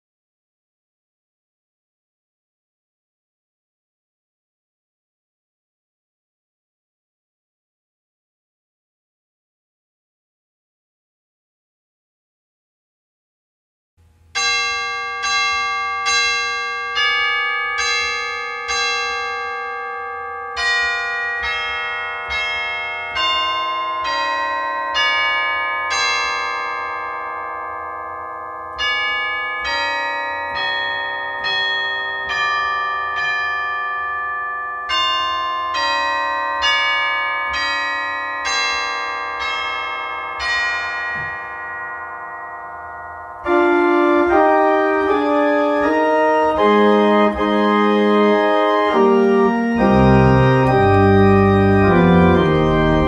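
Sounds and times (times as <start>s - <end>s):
tuned bells playing slow melody: 14.4s - 53.0s.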